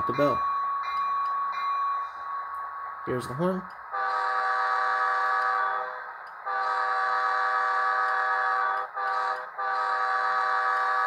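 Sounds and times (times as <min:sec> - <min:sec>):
model locomotive horn: 0:03.9 - 0:11.0.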